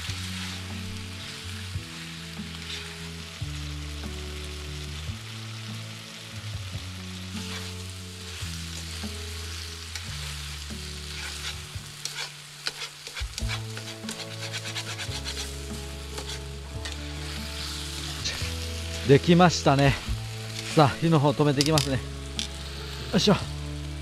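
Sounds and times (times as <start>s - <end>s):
chicken sizzling in a pan: 0.0s - 24.0s
utensil stirring and scraping: 11.0s - 19.2s.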